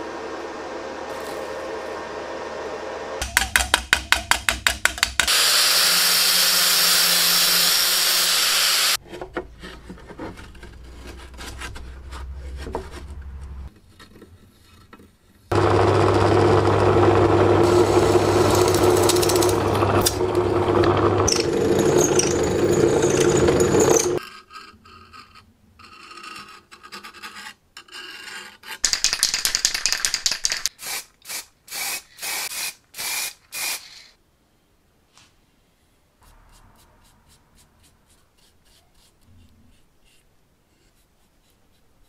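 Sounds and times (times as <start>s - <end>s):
drill press drilling steel: 15.6s - 24.2s.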